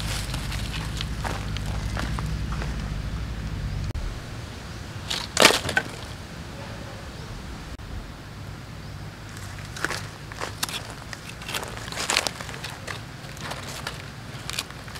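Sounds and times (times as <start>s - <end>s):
low rumble: 0.0s - 5.1s, 6.0s - 11.1s
dry stick snapping: 9.3s - 14.9s.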